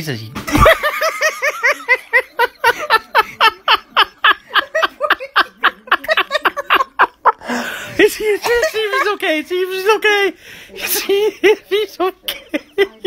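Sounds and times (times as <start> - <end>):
person laughing hard: 0.5 - 7.6.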